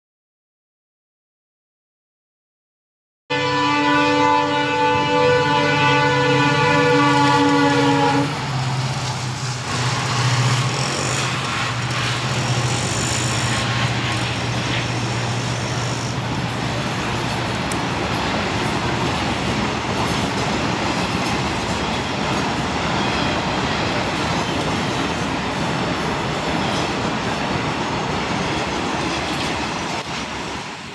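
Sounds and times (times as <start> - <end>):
locomotive horn: 3.3 - 8.6, 9.7 - 17.1
train wheels rumbling on rails: 4.0 - 30.9
locomotive engine hum: 4.2 - 30.9.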